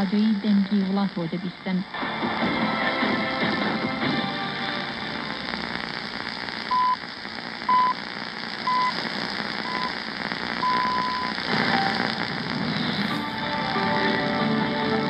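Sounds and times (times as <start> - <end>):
radio static hiss: 0.0 - 15.0
time signal beeps: 6.7 - 7.0, 7.7 - 8.0, 8.6 - 9.0, 9.6 - 10.0, 10.6 - 12.2.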